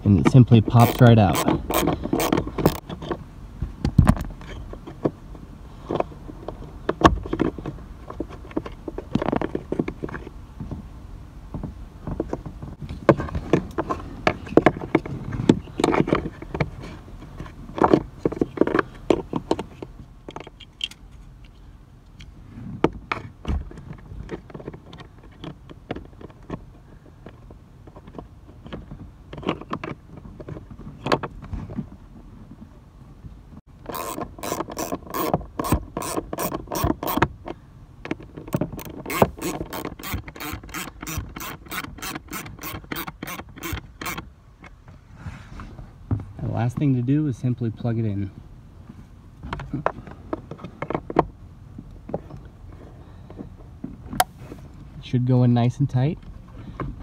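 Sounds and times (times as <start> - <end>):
hand tools clicking and tapping: 0.2 - 2.8, 33.9 - 37.3, 38.1 - 44.2.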